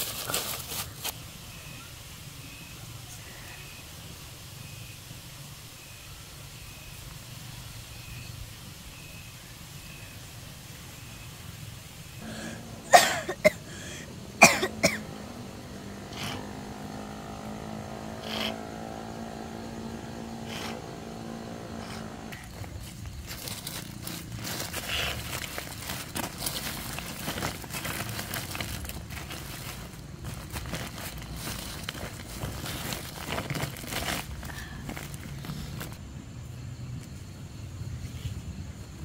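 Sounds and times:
boy coughing: 12.2s - 15.1s
steady motor drone: 12.2s - 34.4s.

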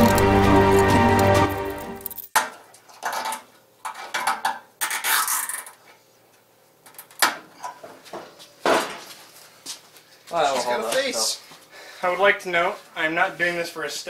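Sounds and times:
metal and plastic parts clinking: 2.0s - 2.4s.

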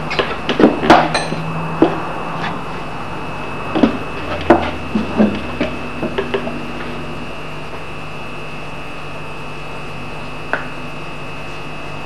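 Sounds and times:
thin high whine: 0.0s - 12.0s.

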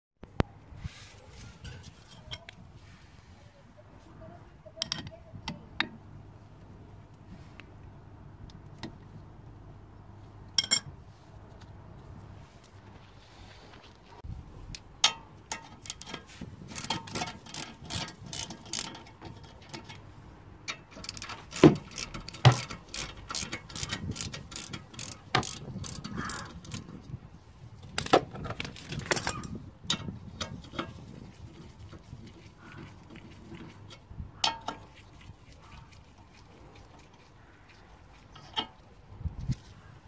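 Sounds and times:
socket ratchet clicking: 15.5s - 20.0s, 20.7s - 26.9s, 28.0s - 29.4s
sharp metal knocks: 20.8s - 26.8s.

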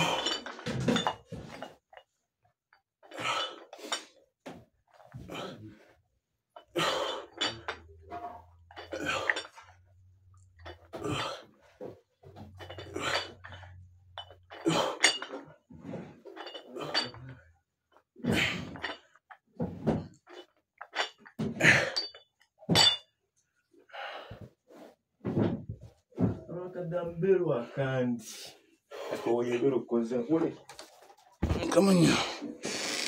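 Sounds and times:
dumbbell plates clinking: 0.0s - 5.3s, 6.5s - 17.6s, 18.2s - 23.2s.

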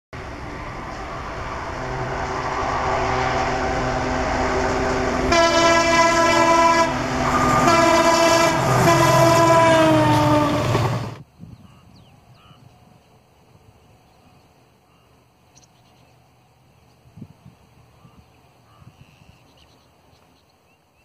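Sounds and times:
diesel locomotive engine: 0.1s - 20.4s
locomotive horn blasts: 1.4s - 11.1s.

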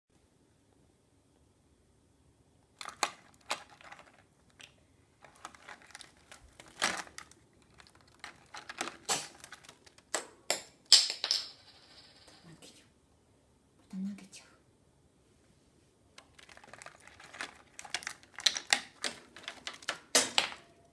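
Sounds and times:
plastic bottle caps clattering: 2.8s - 11.6s, 16.2s - 20.7s.

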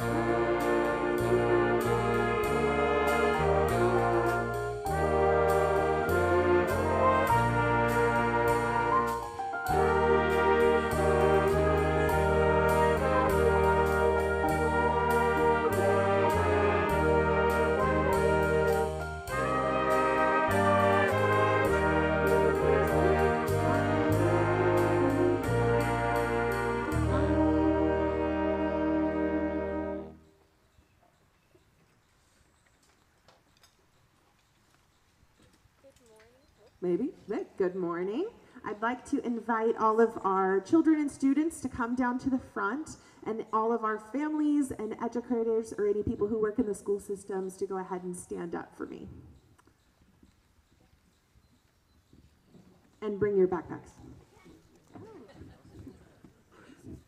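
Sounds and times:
jazz big band playing: 0.0s - 30.2s.

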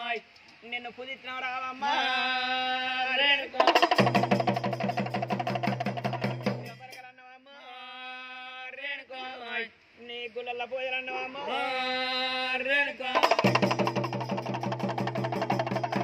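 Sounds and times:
man singing a chant: 1.2s - 4.0s, 6.4s - 14.3s
drum and cymbal beats: 3.6s - 7.1s, 13.2s - 16.0s.

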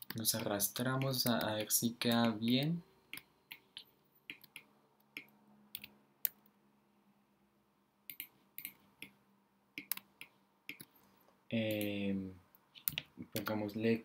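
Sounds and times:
mouse and keyboard clicks: 8.1s - 9.2s, 12.8s - 13.6s.

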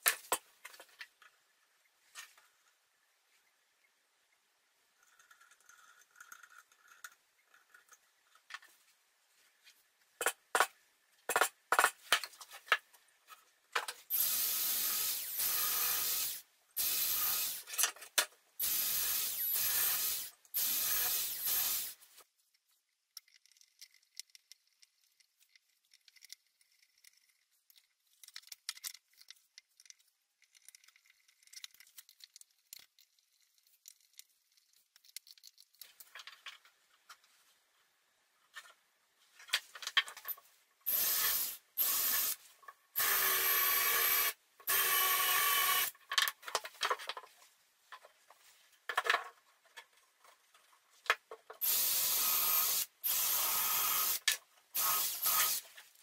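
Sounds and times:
faint scraping and handling noises: 0.5s - 4.0s, 4.9s - 10.2s, 22.0s - 40.8s, 46.1s - 51.6s
sharp clicks and knocks: 10.2s - 12.9s
cordless drill boring into plywood: 14.1s - 17.6s, 18.6s - 22.0s, 40.9s - 42.4s, 43.0s - 45.9s, 51.6s - 55.6s.

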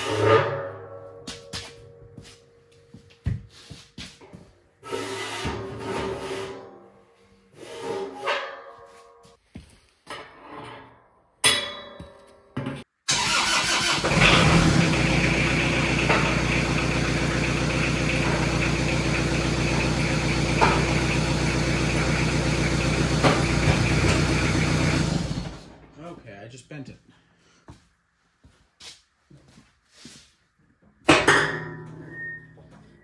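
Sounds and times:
tractor engine running: 13.1s - 26.0s.

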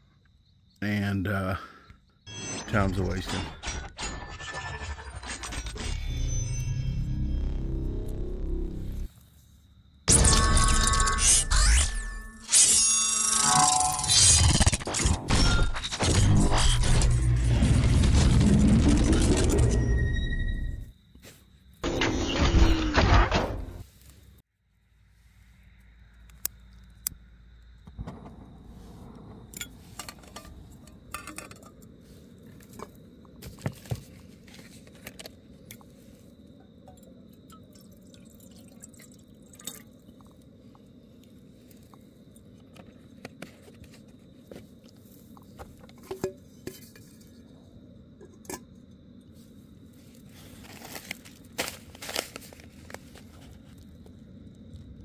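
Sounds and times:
food packets crinkling: 50.5s - 53.7s.

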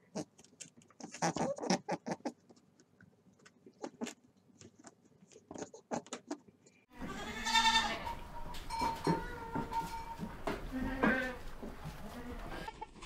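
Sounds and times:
goat bleating: 7.0s - 8.2s, 10.7s - 12.8s.

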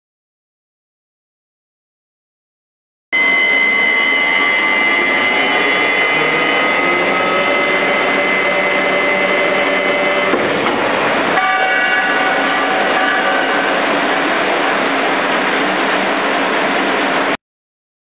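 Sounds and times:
machine running with motor whines: 3.2s - 11.2s.

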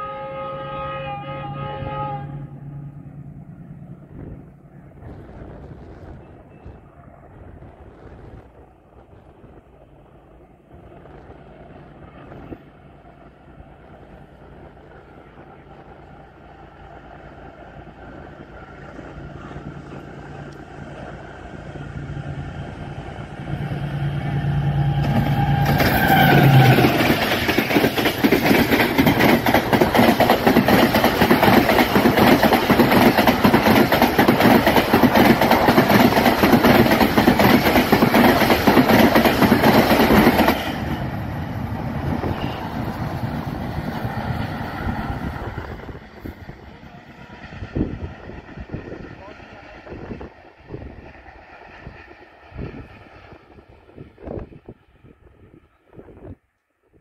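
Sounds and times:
diesel locomotive engine: 0.0s - 56.4s
train wheels clattering over rails: 24.9s - 46.6s.

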